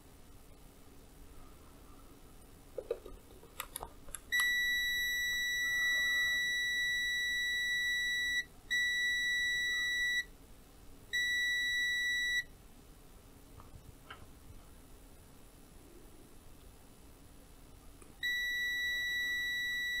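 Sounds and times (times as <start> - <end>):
multimeter continuity beep: 4.3 - 10.3, 11.1 - 12.5, 18.2 - 20.0.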